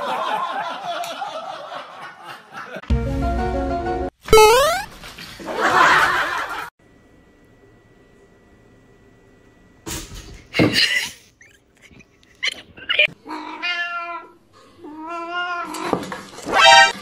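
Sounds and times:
cat yowling: 0:13.3 - 0:14.3.

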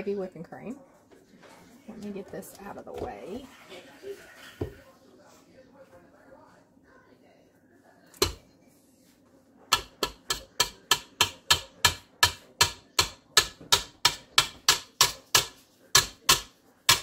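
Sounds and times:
utensil knocking against bowl: 0:09.7 - 0:17.0.

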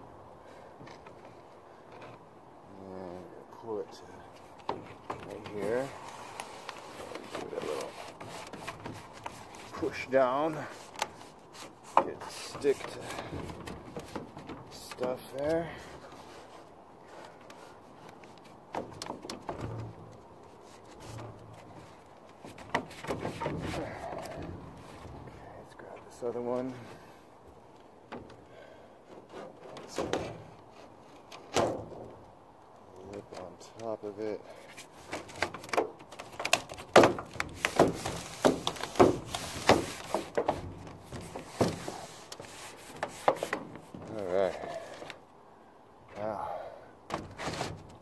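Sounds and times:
hands rubbing on metal roof: 0:04.4 - 0:27.3, 0:34.5 - 0:45.2, 0:47.1 - 0:48.0.

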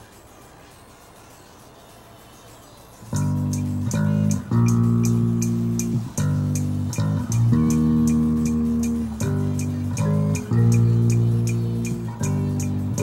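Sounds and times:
quick ticking beat: 0:03.0 - 0:13.0.

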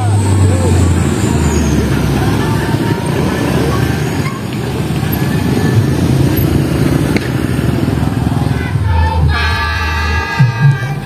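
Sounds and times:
engine rough rumble: 0:00.0 - 0:11.0
music: 0:08.5 - 0:11.0.

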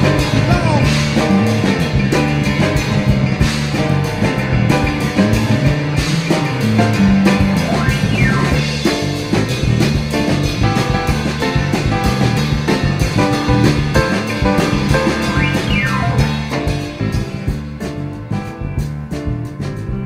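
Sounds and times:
drum kit beat: 0:00.0 - 0:20.0
instrumental background music: 0:00.0 - 0:20.0.

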